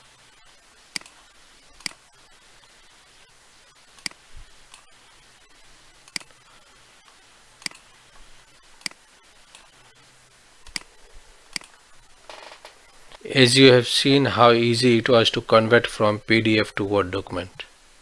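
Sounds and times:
faint background hiss: 0.0 - 18.0
computer mouse clicking: 0.9 - 1.2, 1.8 - 2.0, 4.0 - 4.8, 6.1 - 6.4, 7.6 - 7.9, 8.8 - 9.7, 10.6 - 10.9, 11.5 - 11.8.

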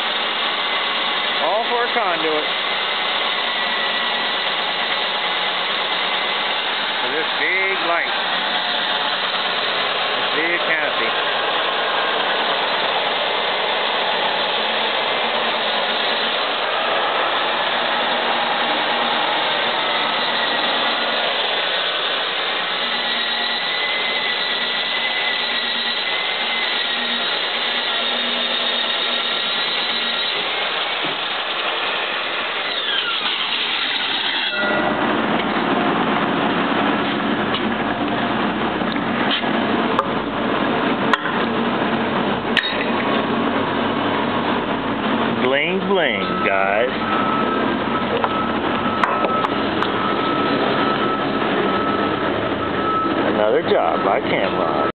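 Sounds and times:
core drill grinding into concrete: 0.0 - 35.7.

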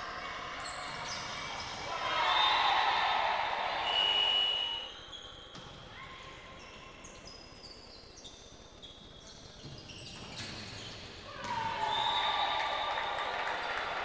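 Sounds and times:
loud hall noise: 0.0 - 5.1, 11.2 - 14.0
whistle-like tone: 3.8 - 5.5, 11.7 - 13.3.

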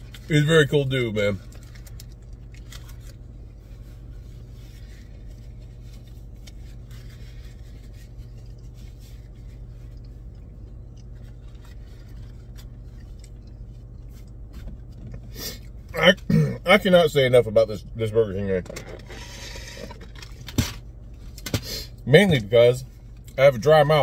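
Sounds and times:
low car cabin hum: 0.0 - 24.0
man chewing food: 5.1 - 15.9.

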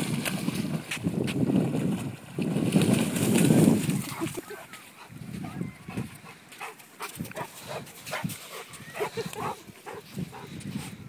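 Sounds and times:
dog panting and snuffling: 4.9 - 11.0.

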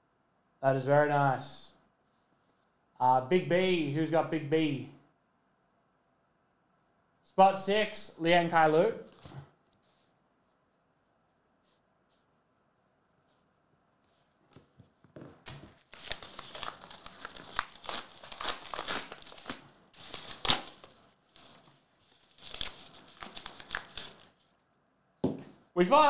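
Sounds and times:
padded bag tearing and crinkling: 15.8 - 24.4.

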